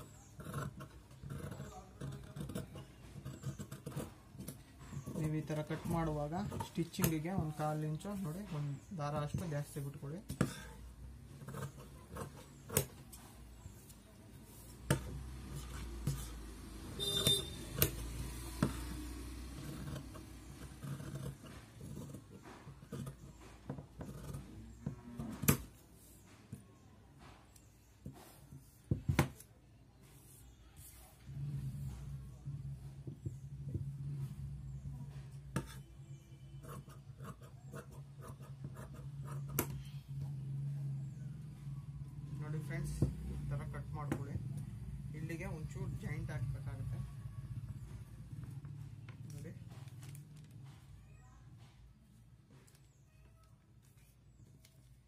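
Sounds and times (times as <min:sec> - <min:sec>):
shears cutting cloth: 0:14.6 - 0:25.7.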